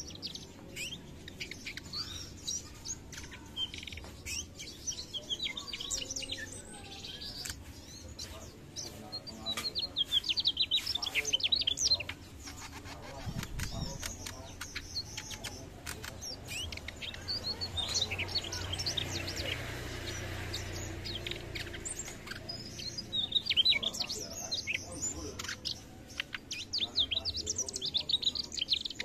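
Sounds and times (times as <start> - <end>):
bird chirping and trilling: 0.0 - 29.0
sharp clicks: 12.0 - 18.1.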